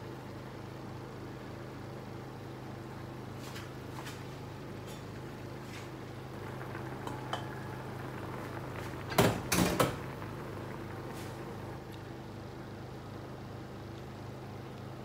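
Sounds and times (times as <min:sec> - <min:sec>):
gas stove hum: 0:00.0 - 0:15.0
sauce bubbling: 0:05.1 - 0:15.0.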